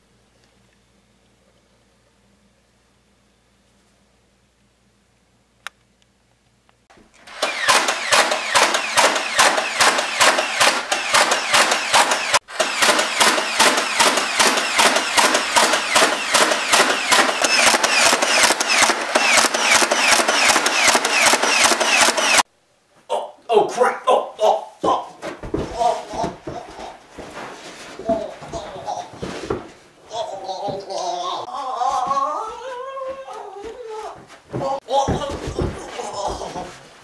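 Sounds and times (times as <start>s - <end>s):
rapid automatic gunfire: 7.3s - 22.4s
sharp click: 7.4s - 22.4s.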